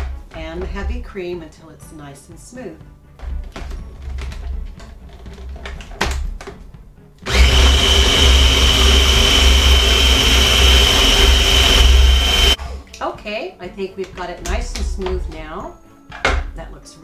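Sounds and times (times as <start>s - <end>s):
food processor motor whining: 7.2s - 12.6s.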